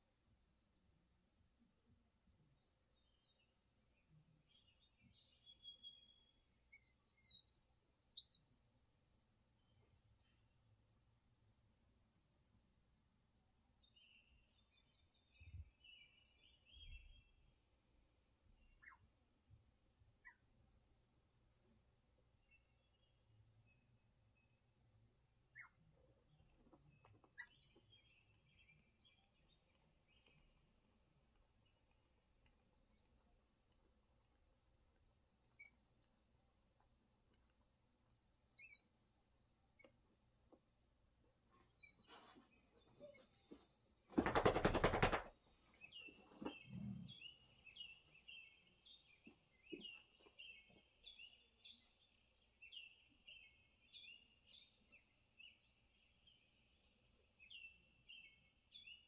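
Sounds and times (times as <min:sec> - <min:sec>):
birdsong from a television: 0:01.4 - 0:12.4, 0:13.5 - 0:59.0
short loud bird chirps: 0:18.8 - 0:19.0, 0:25.5 - 0:25.8.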